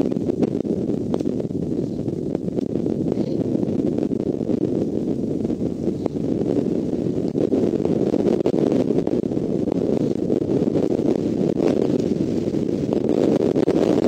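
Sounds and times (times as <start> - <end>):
wind rumbling on microphone: 0.0 - 14.0.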